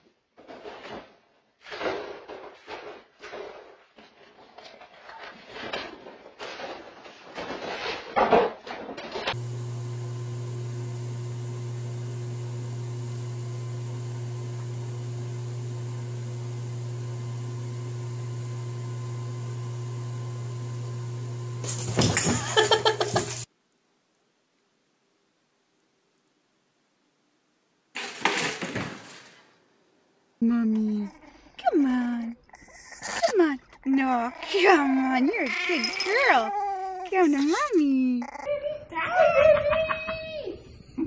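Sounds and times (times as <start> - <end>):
whirlpool pump humming: 9.3 - 23.5.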